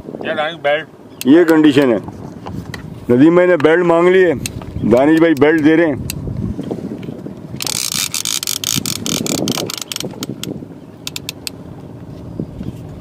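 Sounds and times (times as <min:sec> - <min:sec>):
fishing reel clicking: 0:07.6 - 0:11.6.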